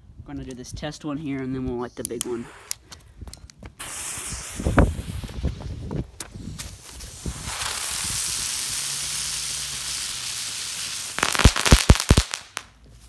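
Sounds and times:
firework hissing: 0:03.8 - 0:12.7
firework crackling: 0:03.8 - 0:12.8.

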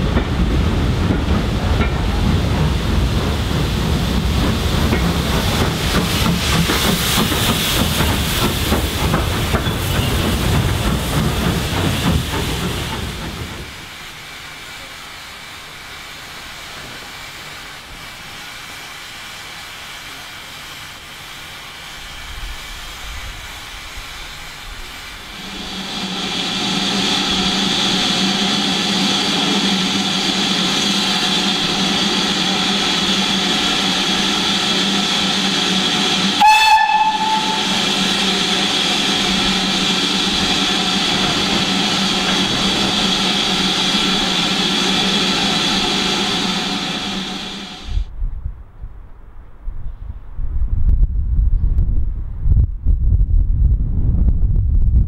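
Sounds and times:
steam locomotive hissing: 0:00.0 - 0:48.1
steam whistle toot: 0:36.3 - 0:38.0.

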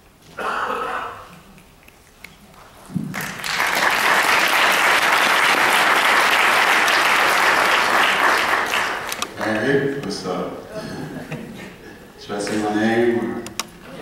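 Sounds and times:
audience applauding: 0:03.1 - 0:09.6.

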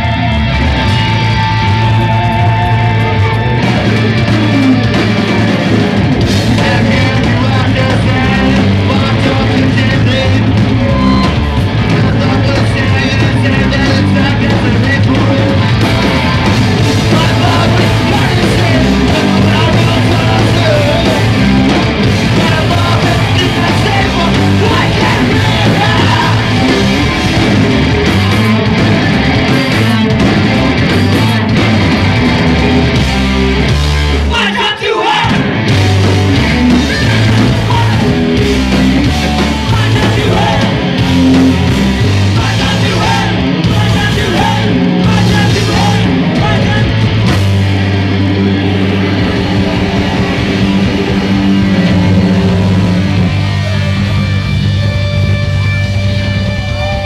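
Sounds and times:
bass guitar: 0:00.0 - 0:57.0
drums: 0:00.0 - 0:57.0
electric guitars: 0:00.0 - 0:57.0
person yelling vocals: 0:34.3 - 0:35.4.

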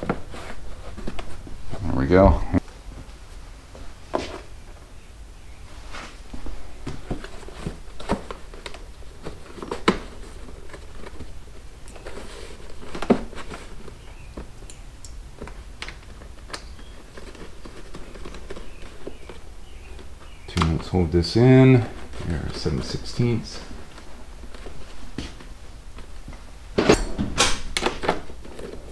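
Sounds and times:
hands clicking and rustling plastic: 0:06.8 - 0:20.9.

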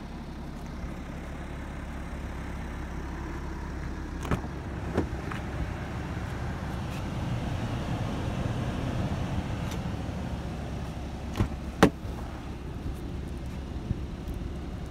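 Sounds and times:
steady low rumble: 0:00.0 - 0:14.9.

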